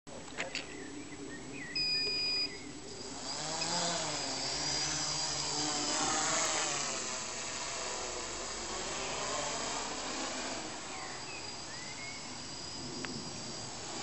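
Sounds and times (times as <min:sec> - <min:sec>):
quadcopter motors whining: 0:00.2 - 0:14.0
electronic beep: 0:01.7 - 0:02.6.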